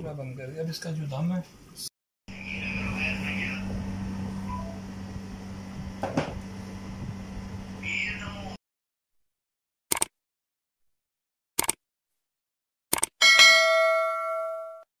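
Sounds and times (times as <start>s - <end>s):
notification bell ding: 13.2s - 14.9s.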